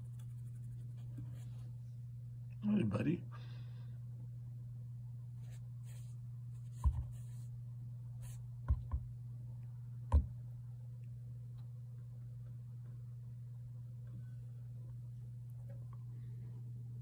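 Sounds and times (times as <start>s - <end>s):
steady low hum: 0.0s - 17.0s
soft thumps on phone: 6.8s - 7.2s.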